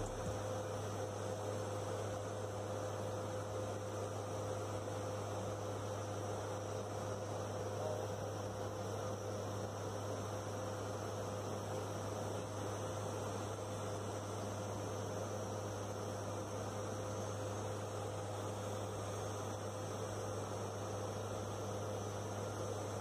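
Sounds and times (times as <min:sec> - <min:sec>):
turboprop engines droning in cabin: 0:00.0 - 0:23.0.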